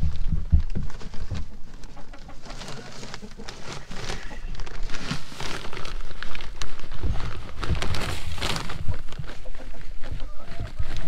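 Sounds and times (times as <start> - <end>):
rustling and scratching: 0.0 - 11.0
chickens clucking: 0.9 - 4.9, 8.8 - 11.0.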